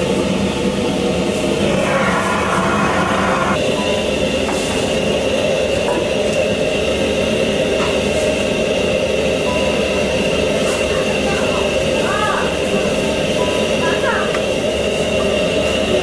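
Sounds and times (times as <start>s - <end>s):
gas burner roaring: 0.0s - 16.0s
thin high whine: 1.5s - 5.8s.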